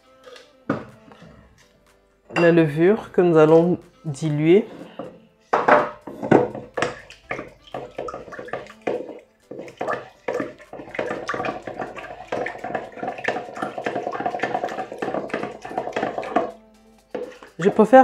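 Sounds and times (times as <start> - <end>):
wooden spatula scraping metal bowl: 4.5 - 18.0
liquid sloshing: 4.6 - 18.0.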